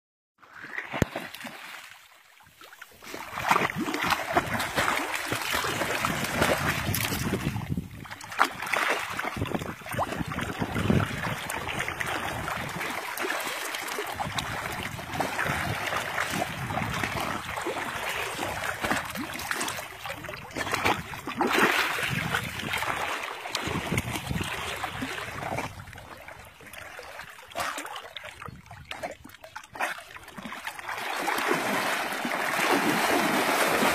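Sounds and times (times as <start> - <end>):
water splashing and sloshing: 0.4 - 33.9.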